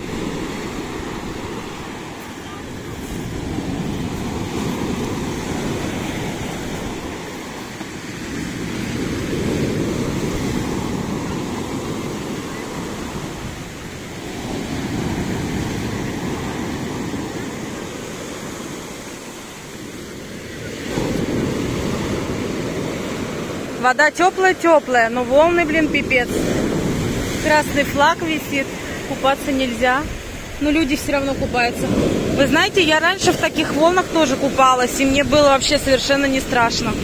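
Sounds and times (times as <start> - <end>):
surf breaking on shingle beach: 0.0 - 23.8.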